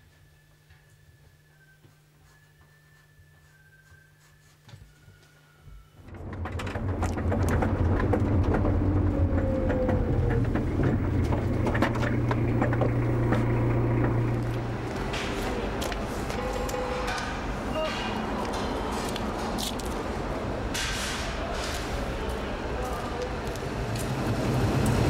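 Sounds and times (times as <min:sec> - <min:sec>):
car engine and road rumble: 0:06.0 - 0:16.3.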